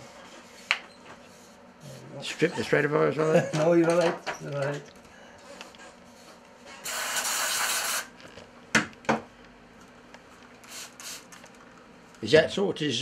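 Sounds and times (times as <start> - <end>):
aerosol spray hiss: 6.8 - 8.0, 10.6 - 11.3.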